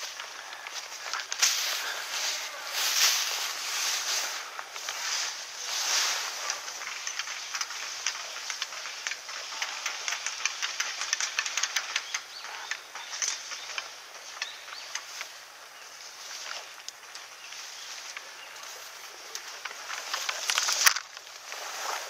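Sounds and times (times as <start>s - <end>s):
footsteps through rustling brush: 0.0s - 22.0s.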